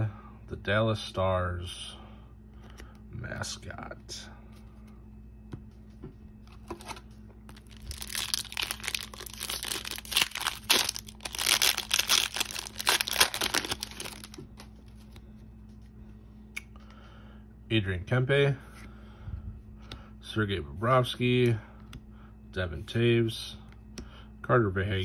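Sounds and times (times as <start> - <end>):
foil wrapper crinkling and tearing: 7.5 - 14.7.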